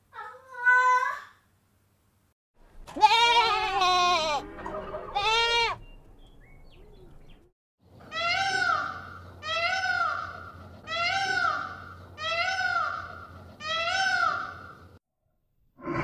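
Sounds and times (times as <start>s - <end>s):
goats bleating: 2.9s - 5.8s
rising and falling animal wail: 3.1s - 5.8s.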